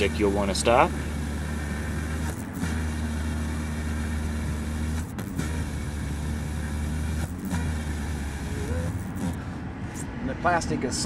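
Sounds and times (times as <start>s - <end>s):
small drill boring glass: 0.0s - 9.4s.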